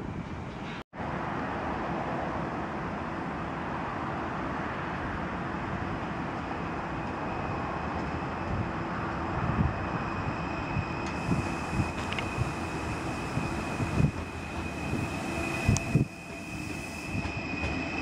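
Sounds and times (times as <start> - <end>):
train wheels rumbling on rails: 6.0 - 18.0.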